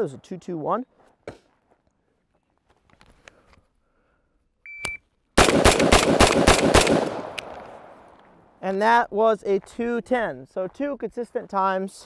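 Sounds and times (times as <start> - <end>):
shot timer beep: 4.7 - 5.0
rifle firing rapid shots: 5.4 - 8.0.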